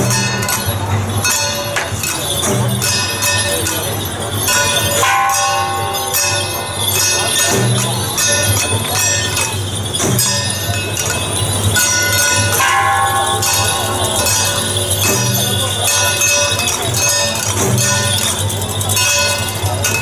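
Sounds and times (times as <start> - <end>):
clashing metal percussion: 0.0 - 20.0
jingling bells: 0.0 - 20.0
ringing metallic tones: 0.0 - 20.0.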